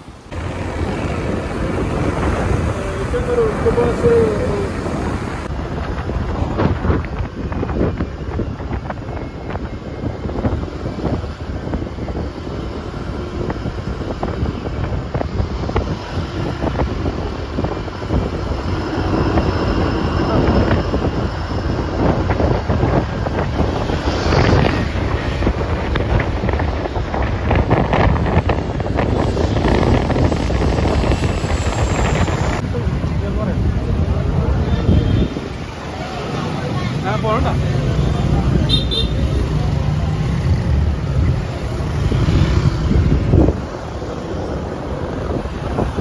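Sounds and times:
propeller plane engine drone: 0.0s - 34.5s
wind buffeting microphone: 0.0s - 46.0s
low rumble of motorbike: 0.3s - 46.0s.

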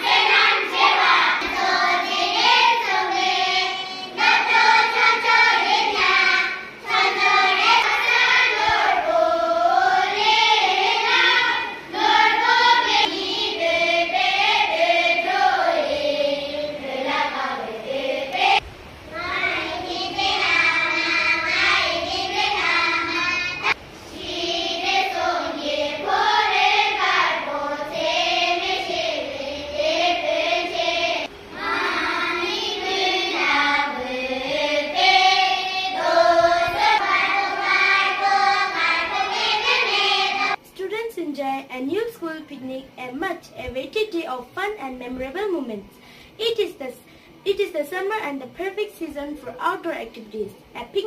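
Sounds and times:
children singing: 0.0s - 40.6s.

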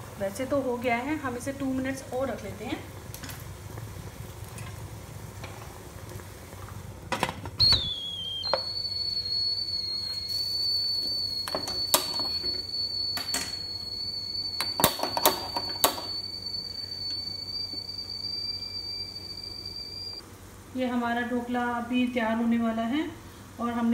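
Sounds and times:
steam whistling from pot: 7.6s - 20.2s.

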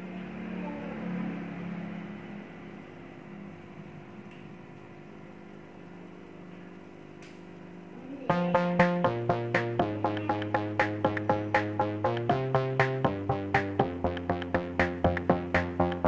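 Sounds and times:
aquarium pump humming: 0.0s - 16.0s
loud electronic music: 8.3s - 16.0s.

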